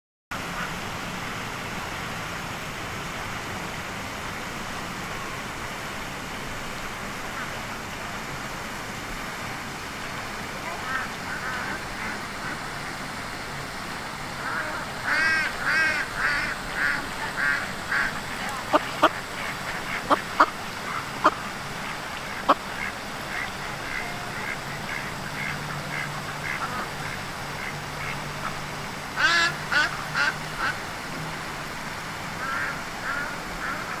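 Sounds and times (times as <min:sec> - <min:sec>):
duck quacking: 0:10.7 - 0:12.7, 0:14.4 - 0:28.6, 0:29.2 - 0:30.8.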